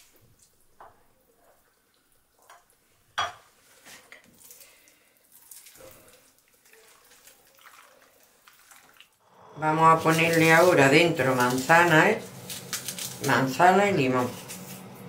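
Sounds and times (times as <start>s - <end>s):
wet squelching and rustling skin: 3.6s - 9.2s, 9.9s - 13.6s.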